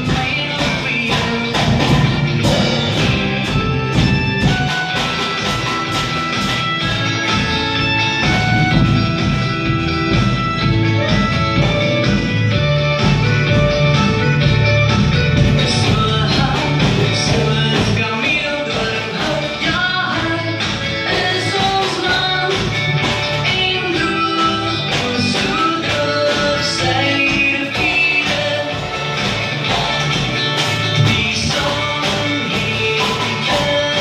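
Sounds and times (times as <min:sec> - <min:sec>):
drum kit hits and cymbals: 0:00.0 - 0:34.0
recorded rock song with singing: 0:00.0 - 0:34.0.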